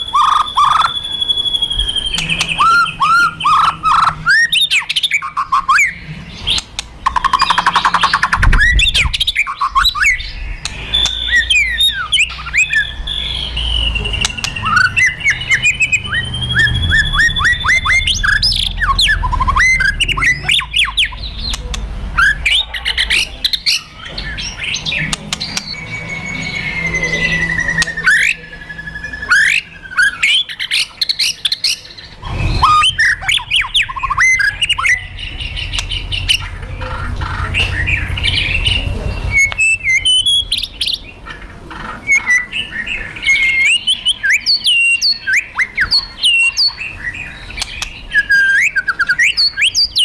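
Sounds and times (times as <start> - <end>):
bird singing whistles: 0.0 - 22.7, 23.6 - 36.4, 37.6 - 41.0, 42.1 - 50.0.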